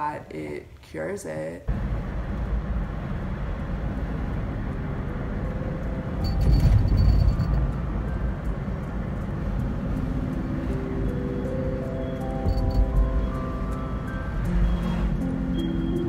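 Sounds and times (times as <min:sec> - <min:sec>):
road and engine rumble inside car: 0:01.7 - 0:11.0
soft background music: 0:02.8 - 0:16.0.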